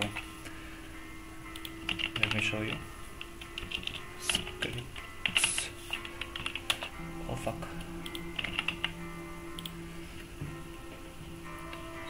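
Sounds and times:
faint background music: 0.0s - 12.0s
keyboard typing clicks: 1.5s - 6.9s, 8.0s - 9.8s.

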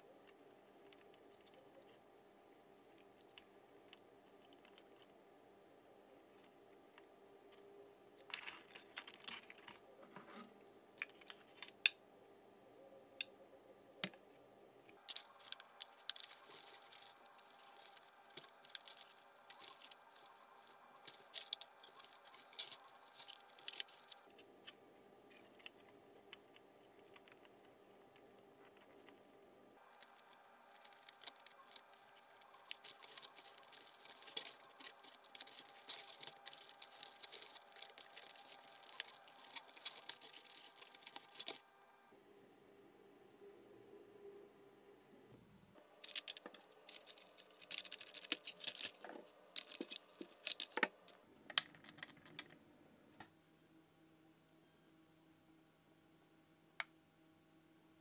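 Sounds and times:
faint steady hum: 0.0s - 58.0s
hands handling wires and connectors: 8.2s - 12.0s, 14.9s - 29.2s, 29.8s - 41.7s, 45.8s - 52.6s.

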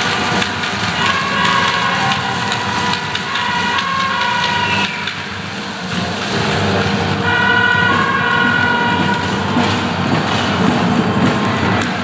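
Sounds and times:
drums beating: 0.0s - 12.0s
horn blowing held notes: 1.0s - 5.3s, 7.2s - 9.7s.

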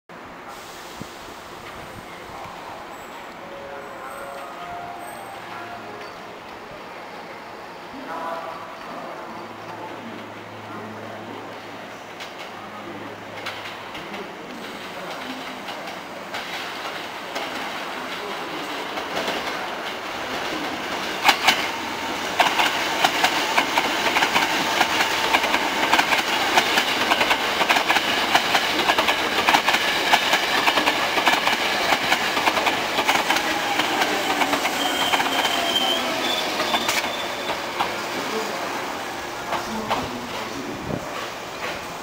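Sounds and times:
electric train passing: 0.2s - 42.0s
train whine: 0.2s - 42.0s
high brake squeal: 34.4s - 37.7s.

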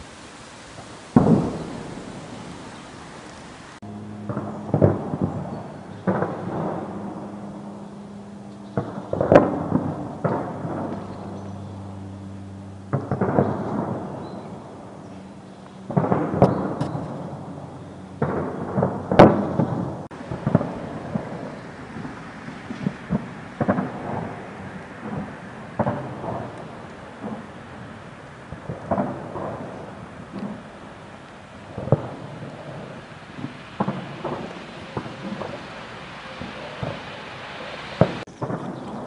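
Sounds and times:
explosion booms rumbling: 0.7s - 7.6s, 18.2s - 30.8s
gunfire cracks: 1.1s - 3.4s, 4.3s - 7.0s, 18.2s - 27.5s, 33.4s - 39.0s.

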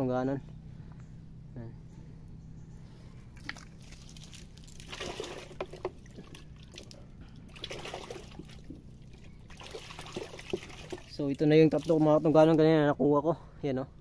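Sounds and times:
mud and water squelching: 3.2s - 12.7s.

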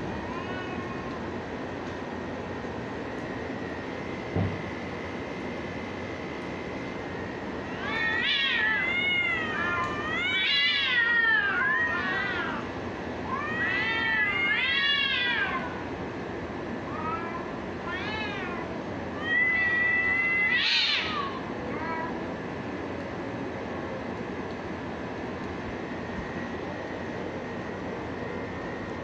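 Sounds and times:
cats yowling: 0.2s - 1.3s, 7.6s - 15.9s, 16.8s - 22.4s.

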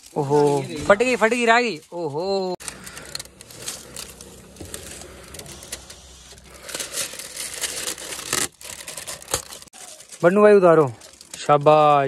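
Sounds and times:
tint film peeling off glass: 2.6s - 10.3s.

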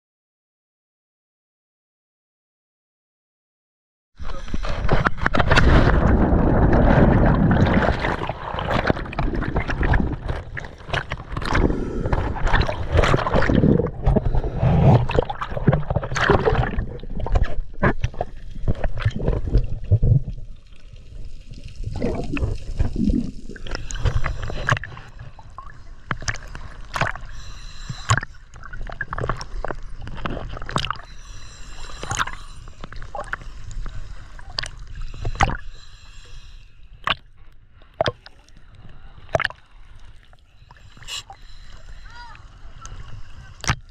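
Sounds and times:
underwater gurgling: 4.2s - 43.9s
water churning and bubbling: 4.2s - 43.9s
sharp underwater clicks and pops: 26.0s - 31.1s, 34.5s - 35.6s, 37.0s - 38.4s, 39.3s - 39.6s.

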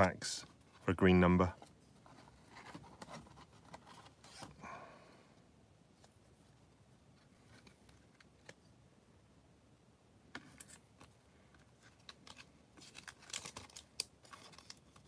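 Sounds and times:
plastic rustling: 10.5s - 15.0s.

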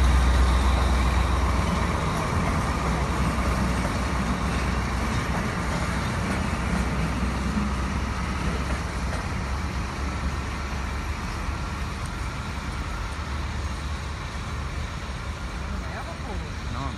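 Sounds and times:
diesel locomotive rumbling: 0.0s - 16.9s.

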